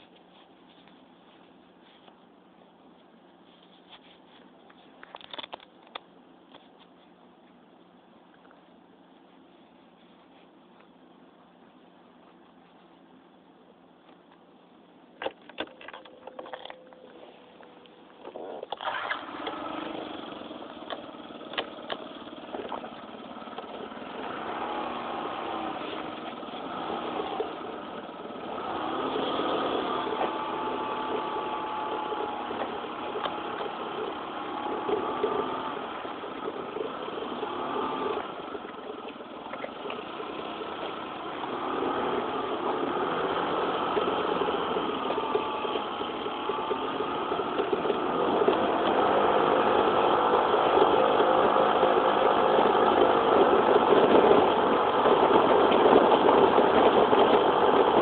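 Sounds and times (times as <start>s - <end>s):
scooter engine running: 18.2s - 58.0s.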